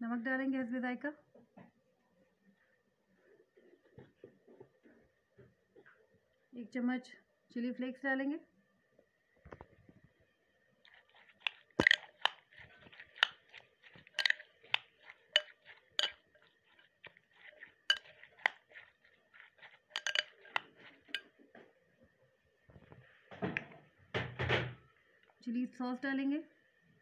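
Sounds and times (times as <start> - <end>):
spoon stirring in glass bowl: 10.8 - 21.6.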